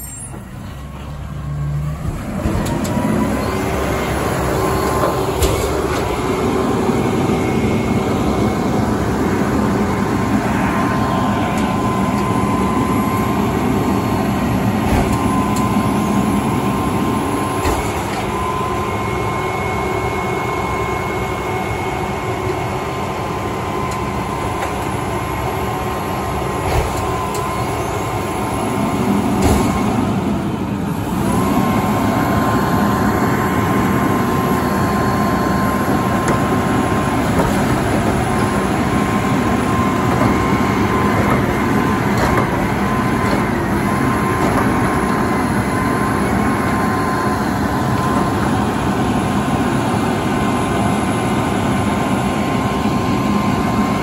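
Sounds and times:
garbage truck hydraulic whine: 0.0 - 54.0.

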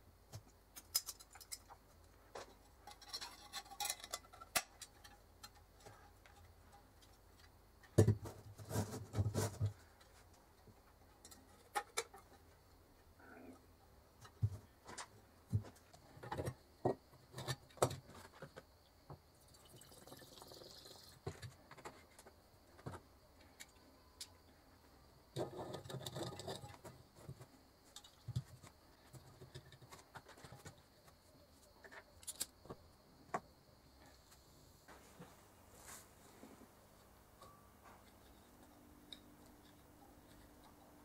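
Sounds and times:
light clicks and knocks of glass and metal: 0.3 - 8.3
rubbing noise: 8.6 - 9.8.

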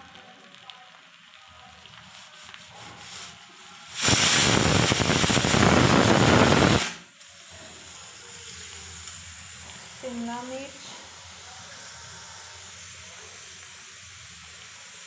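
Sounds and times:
batter sizzling on griddle: 0.0 - 15.0
loud rush of noise: 4.0 - 7.0.

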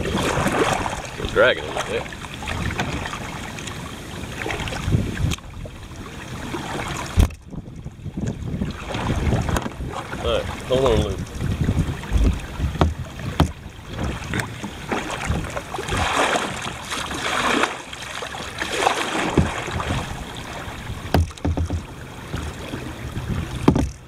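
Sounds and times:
water washing: 0.0 - 7.4, 8.3 - 24.0
kayak knocking against log: 1.8 - 3.7, 6.8 - 17.8, 18.4 - 24.0.

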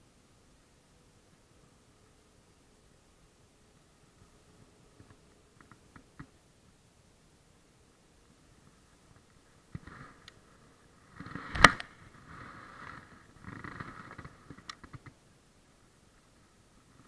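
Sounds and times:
sharp click: 11.5 - 11.9.

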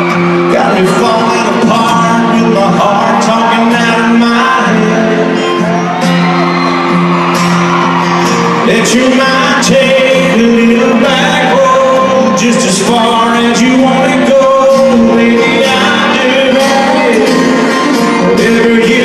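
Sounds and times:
person singing: 0.0 - 6.4, 8.2 - 19.0
live country band: 0.0 - 19.0.

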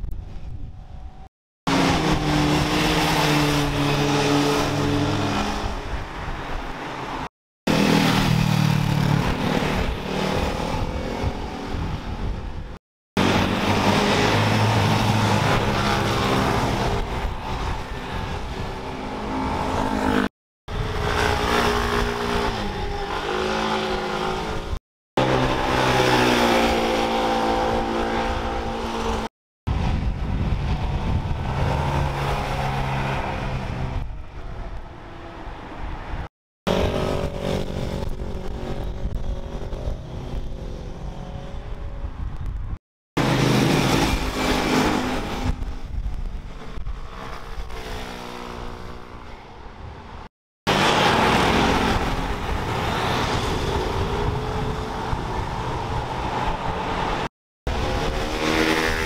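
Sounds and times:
vehicle engines passing at speed: 1.7 - 12.4, 13.2 - 42.2, 43.2 - 59.0.

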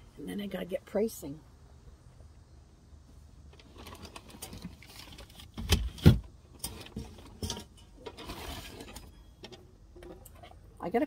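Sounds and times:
rustling with clicks and knocks: 3.5 - 10.7.

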